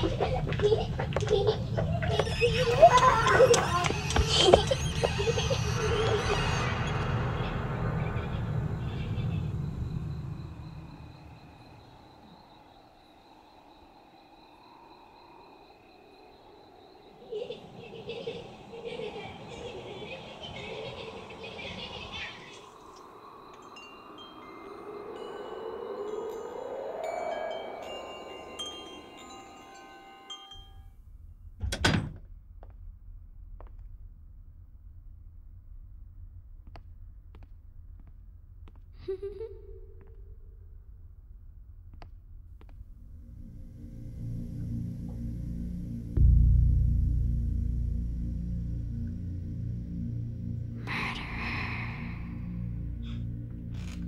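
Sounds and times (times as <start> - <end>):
low rumble: 0.0 - 12.8, 31.0 - 38.9, 40.2 - 54.0
crickets trilling: 0.0 - 30.5
wind rushing: 14.0 - 30.0
metal wind chimes ringing: 22.6 - 30.9
door shutting with heavy thumps: 31.6 - 32.2.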